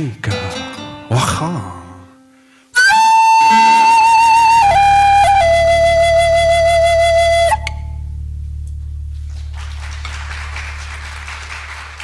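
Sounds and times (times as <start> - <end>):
flute long note: 2.8 - 8.3
low steady drone: 6.4 - 12.0
audience applause: 9.2 - 12.0.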